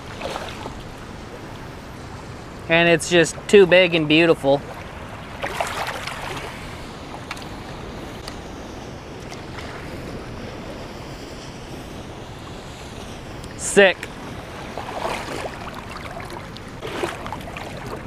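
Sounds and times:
water splashing: 0.0s - 1.5s, 4.6s - 7.6s, 14.1s - 18.0s.

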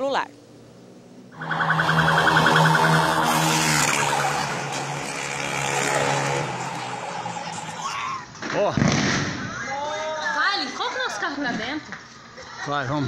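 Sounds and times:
loud street noise: 0.4s - 8.6s
electronic siren pulsing: 1.4s - 8.0s.

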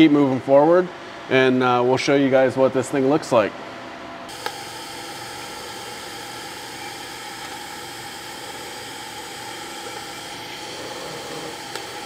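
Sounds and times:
welding arc hissing: 4.3s - 12.0s.

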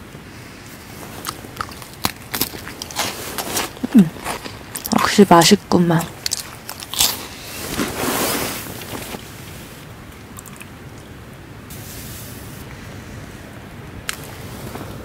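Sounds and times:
rustling: 0.5s - 5.0s, 6.0s - 9.9s.

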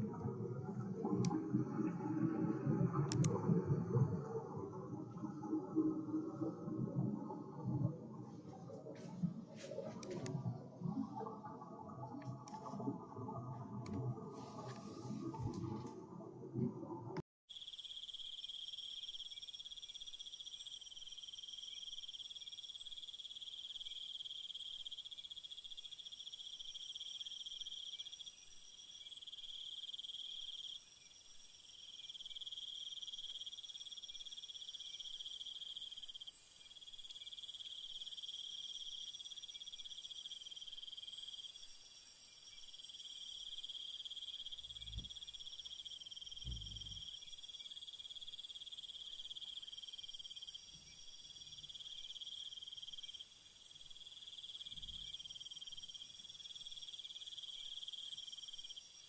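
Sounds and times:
insects trilling: 17.5s - 59.0s.

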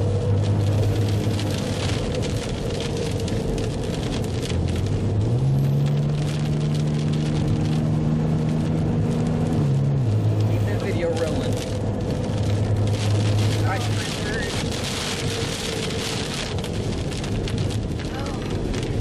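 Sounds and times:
car engine: 0.0s - 19.0s
tyre and road noise: 0.0s - 19.0s.

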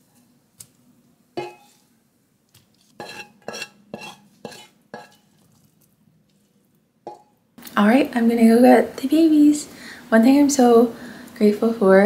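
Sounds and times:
wooden spoon knocking on pan: 1.4s - 1.7s, 7.1s - 7.3s
spoon scraping eggs onto plates: 1.4s - 1.9s, 2.5s - 7.4s.

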